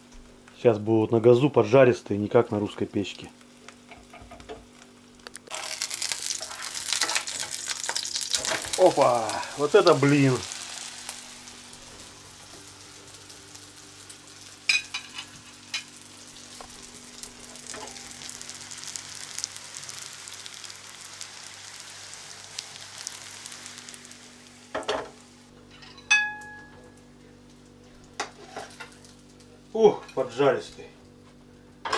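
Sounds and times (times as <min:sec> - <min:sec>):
batter sizzling in a pan: 0:02.3 - 0:25.5, 0:27.0 - 0:30.4
ringing metal clank: 0:25.7 - 0:26.9.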